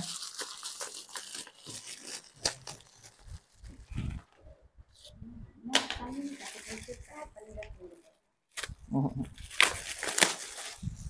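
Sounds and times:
gift packaging tearing and rustling: 0.0s - 4.0s, 6.1s - 7.3s, 8.5s - 11.0s
sharp paper crackle: 0.0s - 4.3s, 6.1s - 7.3s, 9.4s - 11.0s.

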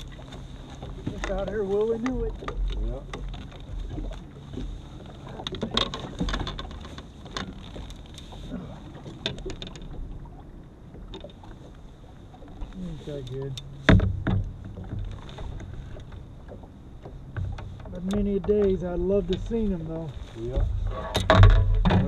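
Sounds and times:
low steady rumble: 0.0s - 22.0s
fishing tackle knocks and clicks: 0.8s - 8.1s, 13.3s - 19.6s, 20.6s - 22.0s.

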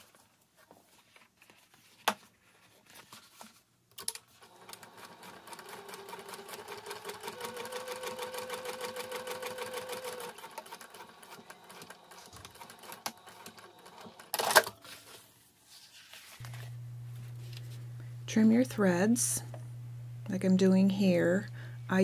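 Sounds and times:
sewing machine stitching: 4.3s - 14.7s.

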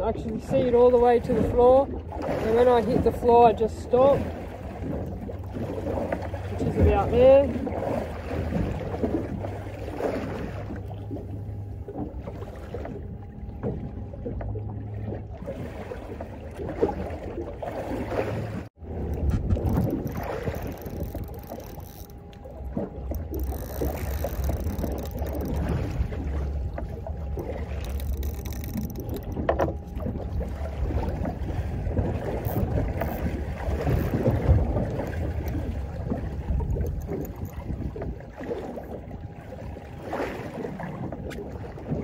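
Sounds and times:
sea wash: 0.0s - 42.0s
wind buffeting microphone: 15.2s - 42.0s.

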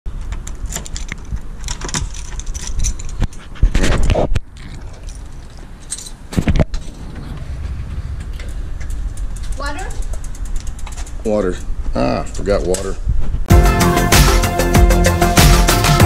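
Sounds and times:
keys jangling: 0.6s - 3.6s, 4.6s - 7.0s.

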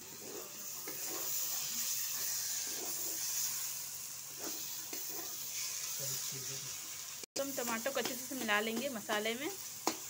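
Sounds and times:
food sizzling in oil: 0.0s - 10.0s
spatula scraping a wok: 0.0s - 10.0s.

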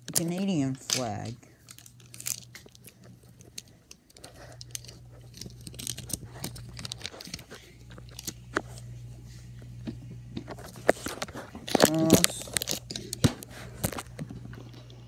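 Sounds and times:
low hum: 0.0s - 15.0s
rustling and crinkling handling: 0.0s - 15.0s.

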